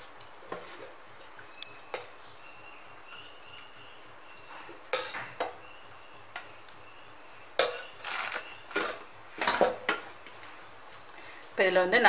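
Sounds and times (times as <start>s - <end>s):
metal utensils clinking on steel bowl: 7.6s - 10.1s.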